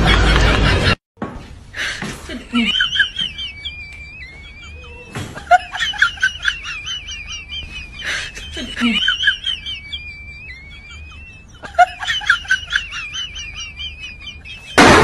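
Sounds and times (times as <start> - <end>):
high-pitched chirping giggles: 2.5 - 14.8.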